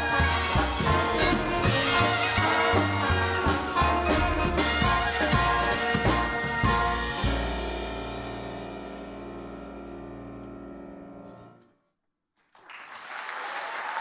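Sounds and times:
jazz big band final chord: 0.0s - 11.6s
audience applause: 12.4s - 14.0s.

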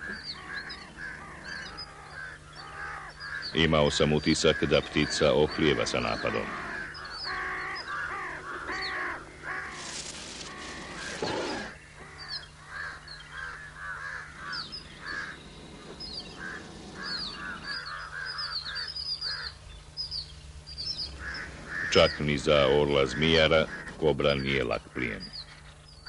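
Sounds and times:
crows cawing: 0.0s - 19.7s, 20.8s - 25.7s
small birds chirping: 0.0s - 26.0s
rustling: 9.4s - 11.8s.

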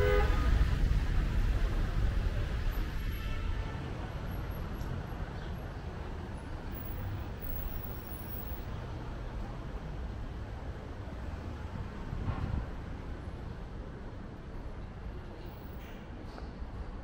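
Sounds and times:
traffic rumble: 0.0s - 17.0s.

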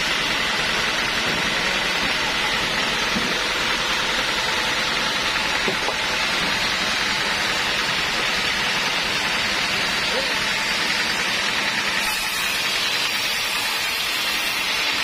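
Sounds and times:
band sawmill whirring: 0.0s - 15.0s.

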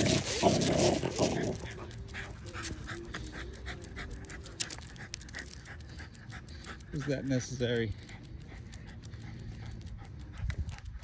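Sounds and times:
dog panting rapidly: 0.0s - 11.0s
rough dog breath: 0.0s - 11.0s.

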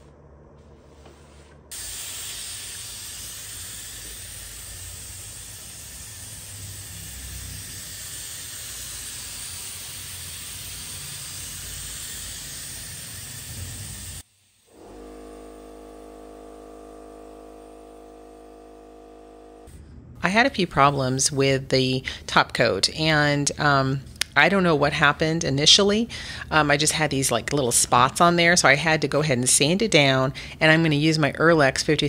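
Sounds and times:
spray gun hissing: 0.8s - 19.7s.

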